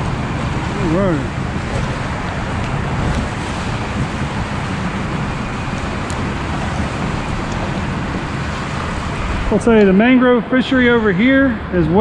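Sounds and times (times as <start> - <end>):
boat motor running: 0.0 - 12.0
water rushing: 0.0 - 12.0.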